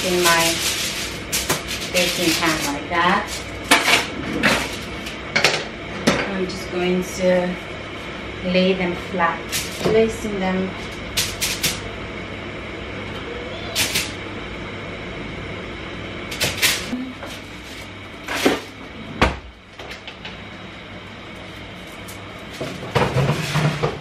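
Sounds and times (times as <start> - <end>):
clicks and rustles of foil: 0.0 - 5.0.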